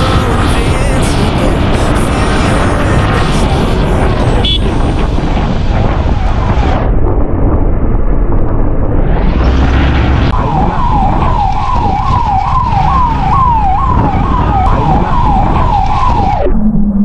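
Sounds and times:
wind and road noise: 0.0s - 17.0s
siren wailing: 9.2s - 17.0s.

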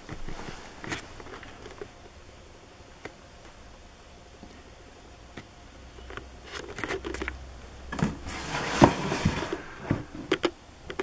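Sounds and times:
cardboard rustling and scraping: 7.9s - 10.3s.

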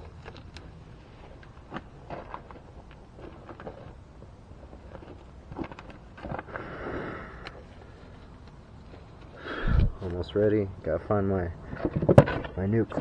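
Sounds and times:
clicks and knocks of parts: 11.7s - 13.0s.

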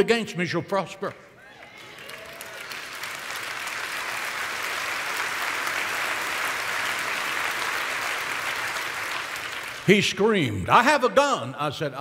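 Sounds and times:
congregation applauding: 1.4s - 10.5s.

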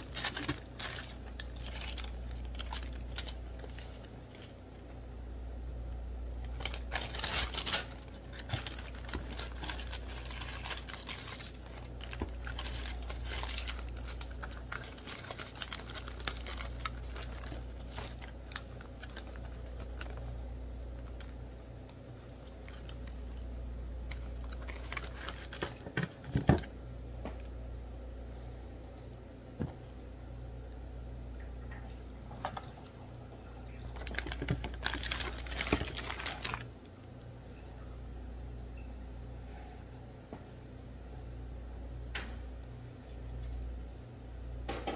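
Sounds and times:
plastic bag crinkling: 0.0s - 5.0s, 6.3s - 26.7s, 33.7s - 36.7s
low steady hum: 0.0s - 44.9s.

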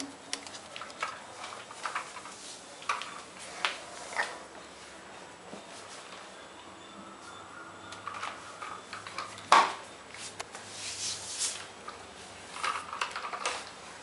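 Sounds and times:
plastic toy clicking and clattering: 0.3s - 3.2s, 12.5s - 13.8s.

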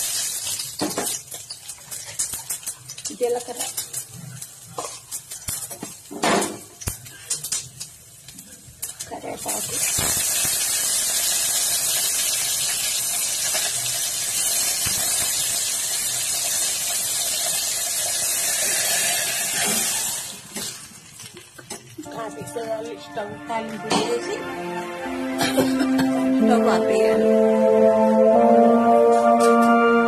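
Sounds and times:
leaves spluttering in hot oil: 0.0s - 22.1s.

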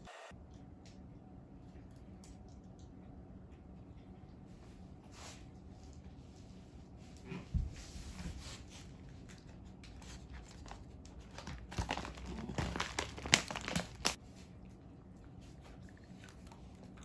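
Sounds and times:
plastic bag crinkling: 10.6s - 14.2s.

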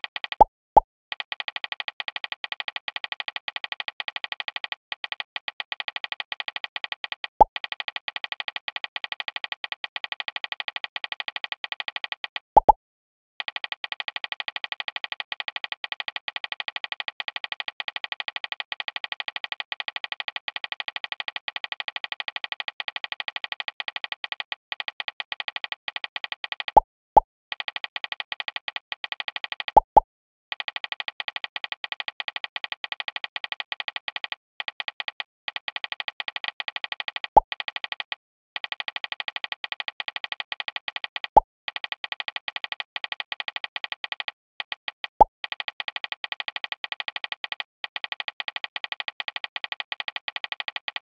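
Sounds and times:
phone keyboard tap sounds: 12.6s - 12.8s, 29.7s - 30.0s.

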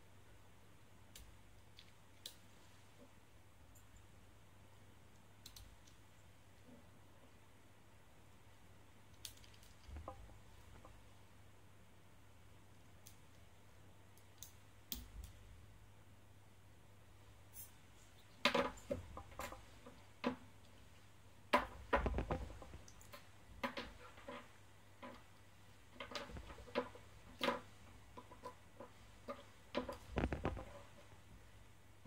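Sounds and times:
faint low hum: 0.0s - 32.0s
plastic parts clicking and knocking: 21.5s - 31.0s.

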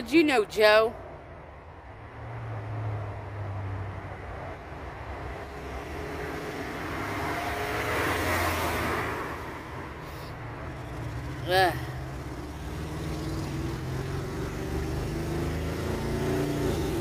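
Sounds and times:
road vehicle passing by: 1.2s - 17.0s.

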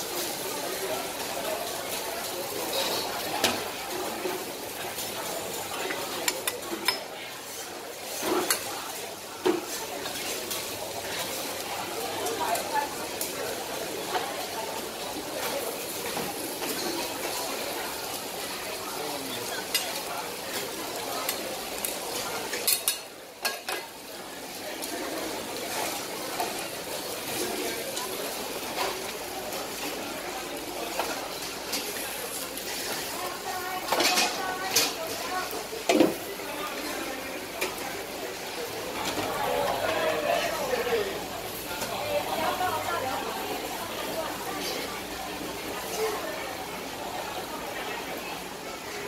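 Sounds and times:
griddle sizzling: 0.0s - 49.0s
metal utensils clacking and scraping: 19.6s - 23.9s, 33.8s - 35.3s.

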